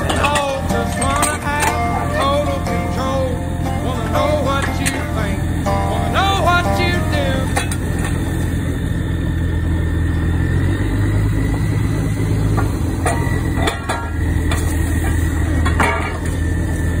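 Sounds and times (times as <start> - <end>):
sharp metal clanks: 0.0 - 8.4, 12.5 - 16.6
drilling rig engine running: 0.0 - 17.0.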